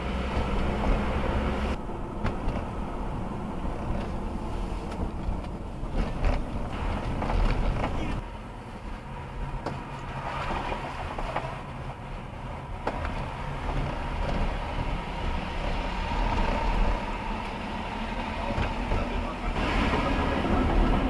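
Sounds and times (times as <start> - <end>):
car road and engine rumble: 0.0 - 21.0
tyres hissing on wet road: 14.6 - 21.0.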